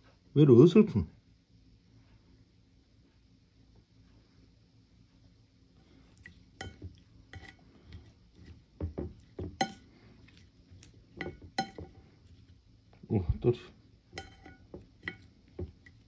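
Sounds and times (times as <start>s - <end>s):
spoon clinking on ceramic dishes: 6.2s - 8.1s, 8.9s - 10.4s, 11.2s - 12.0s, 14.2s - 16.0s.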